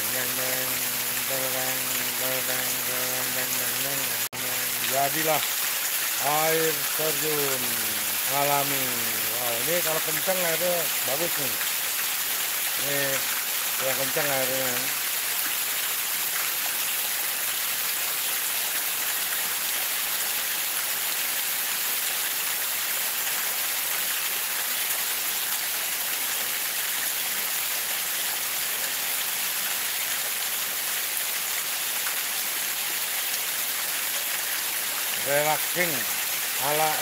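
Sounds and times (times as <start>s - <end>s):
rainwater rushing down ditch: 0.0s - 37.0s
steady falling rain: 0.0s - 37.0s.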